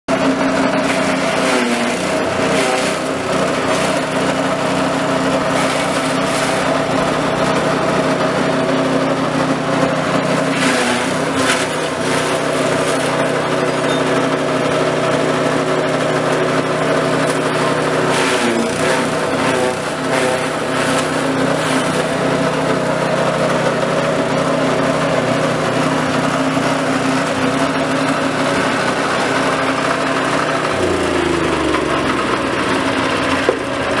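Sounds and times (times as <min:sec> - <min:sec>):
small engine running grass chopper: 0:00.1 - 0:34.0
grass stalks being chopped: 0:00.8 - 0:04.3, 0:05.5 - 0:06.8, 0:10.5 - 0:13.3, 0:18.1 - 0:22.2.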